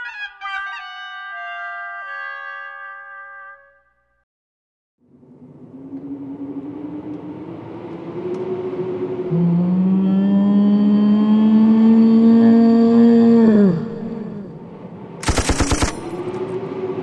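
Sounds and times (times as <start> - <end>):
engine running: 5.0 - 12.4, 14.6 - 17.0
second louder engine: 5.0 - 17.0.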